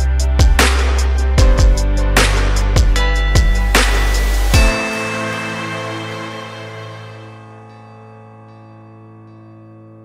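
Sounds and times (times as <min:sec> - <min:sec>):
electronic music with steady beat: 0:00.0 - 0:07.6.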